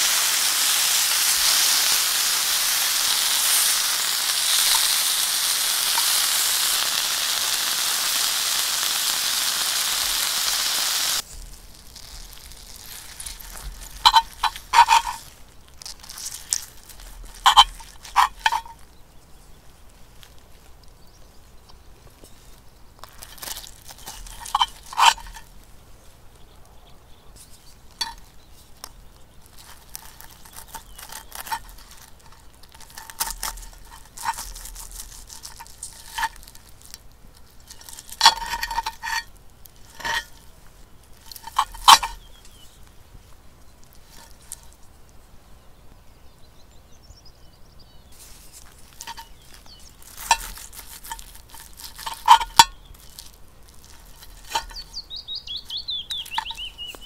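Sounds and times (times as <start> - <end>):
knife and fork scraping a pan: 1.3 - 8.0, 12.9 - 18.8, 23.0 - 25.5, 29.6 - 36.7, 37.7 - 40.4, 41.2 - 42.6, 48.5 - 57.0.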